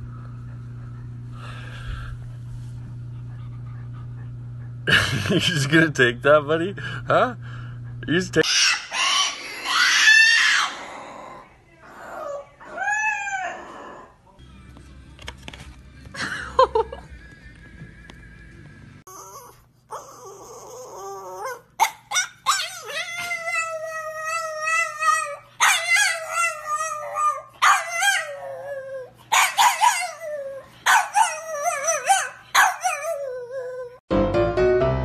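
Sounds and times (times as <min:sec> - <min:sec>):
faint low hum: 0:00.0 - 0:08.4
dog howling and whining: 0:08.5 - 0:14.2, 0:19.0 - 0:34.0.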